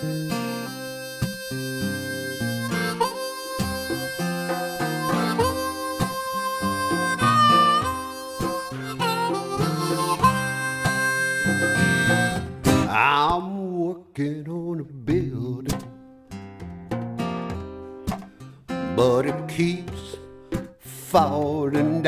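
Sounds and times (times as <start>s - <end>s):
harmonica bending notes: 0.0s - 13.0s
plucked acoustic guitar: 0.0s - 22.0s.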